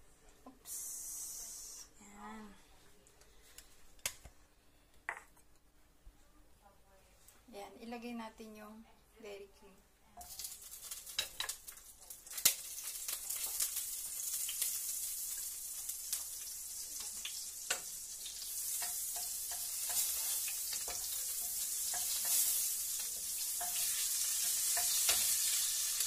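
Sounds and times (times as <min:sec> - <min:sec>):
margarine sizzling in a pot: 0:10.1 - 0:26.0.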